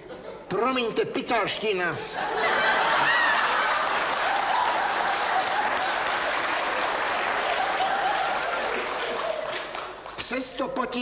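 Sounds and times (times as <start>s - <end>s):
audience laughing: 2.1s - 9.7s
audience clapping: 2.8s - 10.7s.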